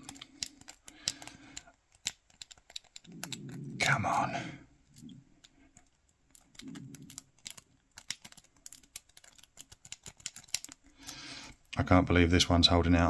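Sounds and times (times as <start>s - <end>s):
lock pick clicking in padlock: 0.0s - 3.4s, 6.3s - 10.7s.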